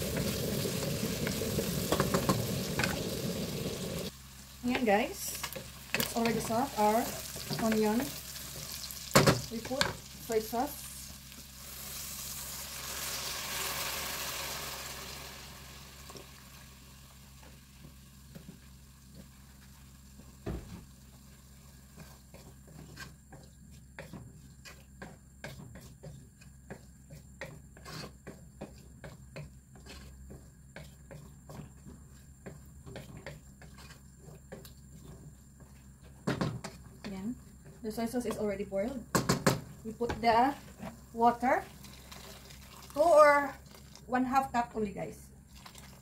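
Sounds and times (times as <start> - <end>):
sauce sizzling in hot pot: 0.0 - 23.2, 39.4 - 44.1
wooden spoon scraping pot: 21.9 - 38.8.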